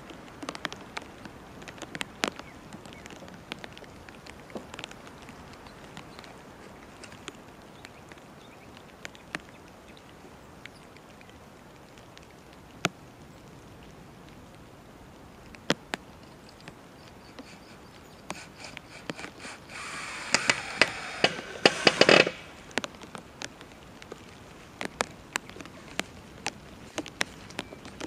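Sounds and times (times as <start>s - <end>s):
cordless drill driving screw: 18.3s - 22.5s
sharp drill clutch clicks: 18.3s - 22.5s.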